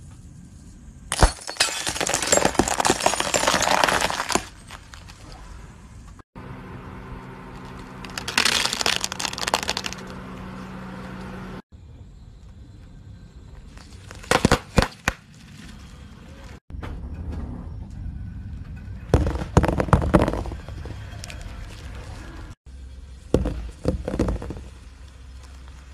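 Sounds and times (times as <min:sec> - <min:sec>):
tyre crushing objects: 0:01.1 - 0:05.2, 0:14.0 - 0:15.2, 0:19.1 - 0:21.0.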